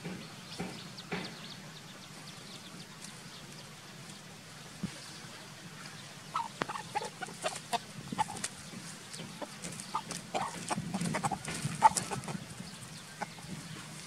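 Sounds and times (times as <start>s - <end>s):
rooster clucking: 6.3s - 14.0s.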